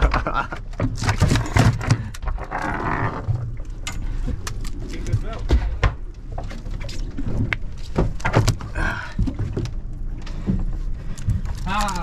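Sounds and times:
knocks and thumps on boat deck: 0.0s - 2.5s, 5.1s - 6.5s, 7.3s - 11.5s.

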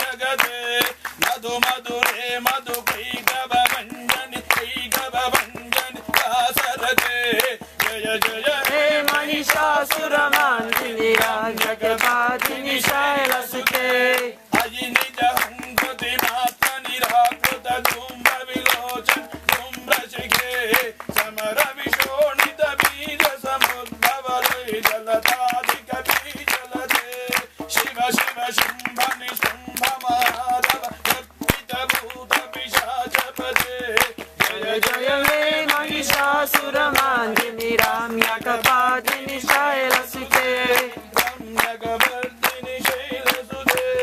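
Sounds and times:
group singing a chant: 0.0s - 44.0s
rhythmic hand clapping: 0.0s - 44.0s.

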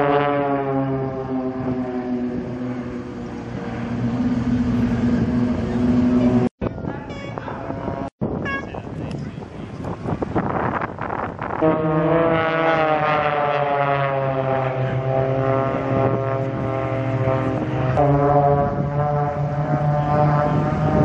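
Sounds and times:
higher-pitched drone: 0.0s - 9.0s
propeller plane engines droning: 0.0s - 21.0s.

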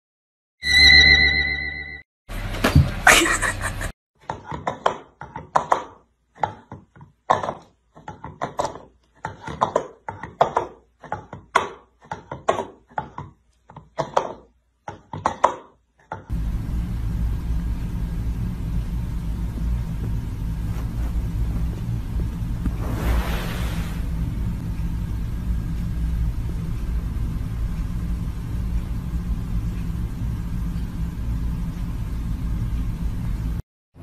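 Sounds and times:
steady low rumble: 16.3s - 33.6s.

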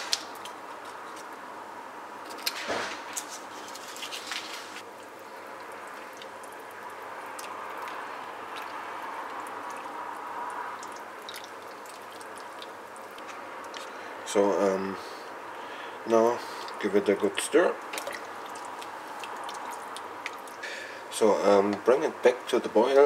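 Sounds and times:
liquid sloshing softly: 3.5s - 14.1s, 17.7s - 20.6s.

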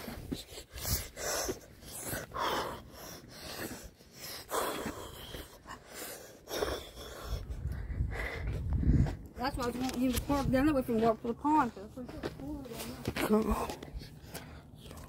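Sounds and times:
person breathing heavily: 0.0s - 9.4s, 12.8s - 15.0s.

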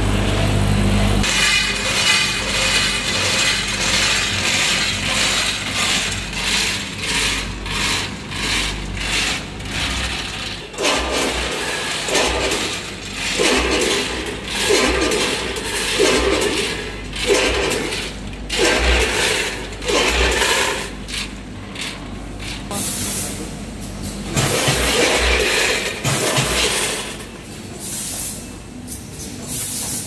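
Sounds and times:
machine humming: 0.0s - 22.8s
nuts rattling from hoppers: 1.2s - 22.8s, 23.8s - 27.4s.

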